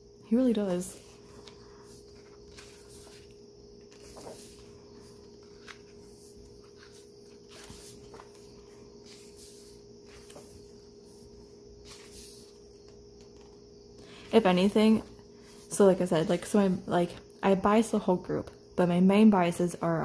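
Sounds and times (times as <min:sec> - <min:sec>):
faint steady hum: 0:00.0 - 0:20.0
book pages turning: 0:00.6 - 0:13.6.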